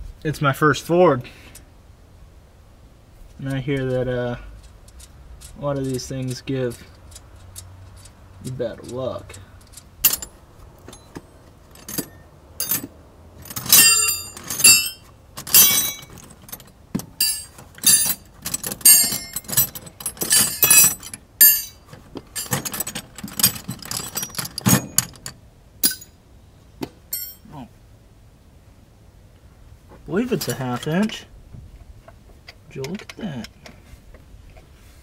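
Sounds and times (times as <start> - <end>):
metal tools clinking in bag: 10.0 - 26.1, 27.1 - 27.5.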